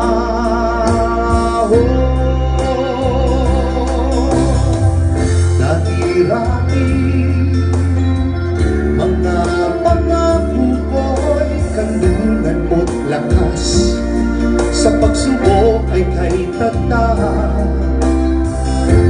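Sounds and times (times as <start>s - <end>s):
man singing a long note: 0.0s - 7.6s
keyboard and acoustic guitar: 0.0s - 19.0s
steady low bass: 0.0s - 19.0s.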